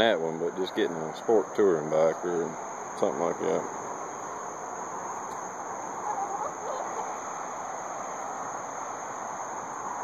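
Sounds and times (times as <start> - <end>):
steady outdoor hiss: 0.0 - 10.0
chickens clucking: 5.1 - 7.7.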